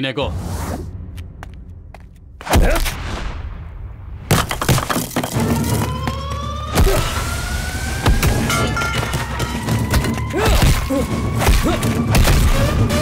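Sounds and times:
whoosh: 0:00.3 - 0:01.2.

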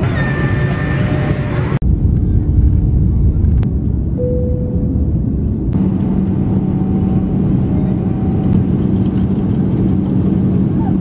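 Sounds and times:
jet engine and airflow rumble: 0:00.0 - 0:11.0.

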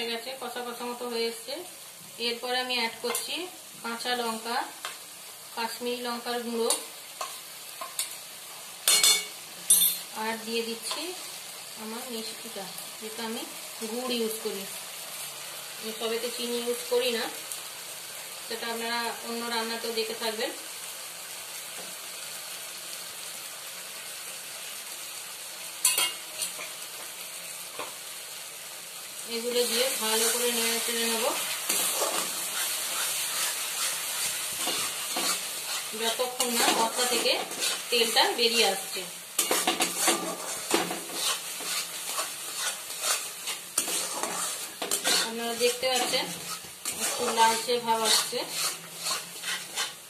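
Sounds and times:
paste sizzling in a pan: 0:00.0 - 0:50.0
metal spatula scraping metal pan: 0:30.1 - 0:38.8, 0:39.4 - 0:50.0.

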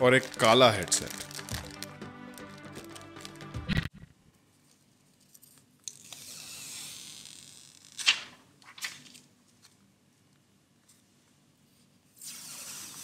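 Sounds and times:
plastic film peeling hiss: 0:00.0 - 0:03.5, 0:12.1 - 0:13.0
plastic film crackle: 0:00.0 - 0:03.9.

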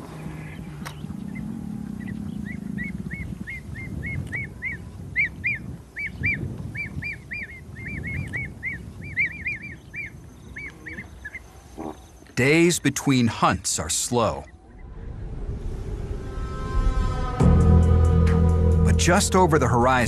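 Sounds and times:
low rumble: 0:14.6 - 0:20.0.

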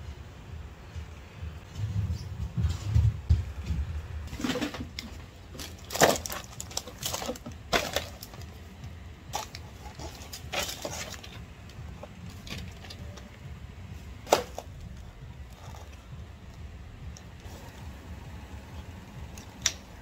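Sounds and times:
shopping bag rustling: 0:04.3 - 0:08.7, 0:09.3 - 0:13.2
plastic blister pack crackling: 0:04.5 - 0:08.7.

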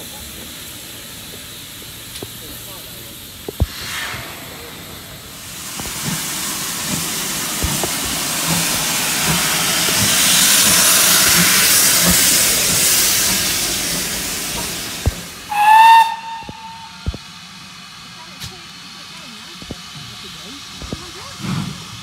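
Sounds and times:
steam hissing from locomotive: 0:00.0 - 0:22.0
steam whistle blast: 0:15.5 - 0:17.2.

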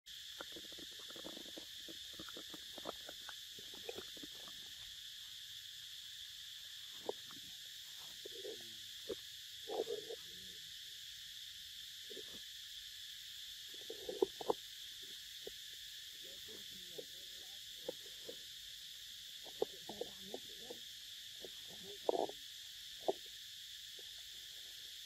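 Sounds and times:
insects droning: 0:00.1 - 0:25.0.

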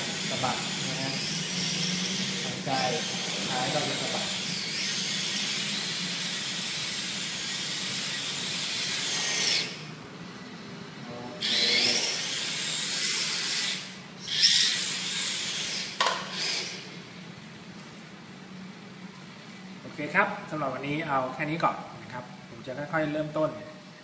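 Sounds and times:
rc car motors whining: 0:00.0 - 0:09.8, 0:11.4 - 0:16.9.

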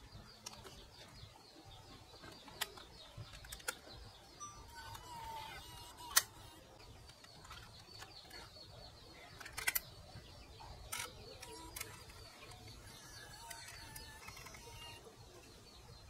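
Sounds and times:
camcorder tape compartment clicks: 0:06.0 - 0:06.4, 0:09.4 - 0:09.9.

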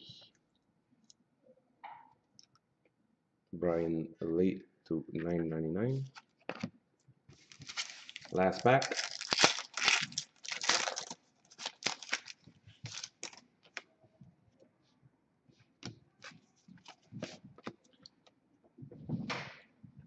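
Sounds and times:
foil pack crinkling: 0:07.4 - 0:13.4.

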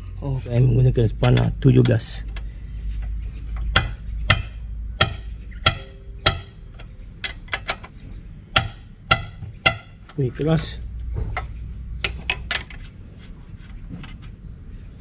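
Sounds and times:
spanner clinking on metal: 0:03.7 - 0:07.9, 0:08.5 - 0:10.2, 0:11.4 - 0:12.8.

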